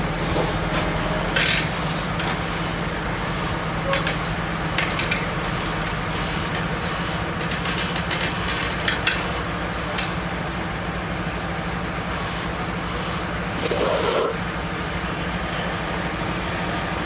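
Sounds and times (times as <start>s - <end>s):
machine mechanical hum: 0.0s - 17.0s.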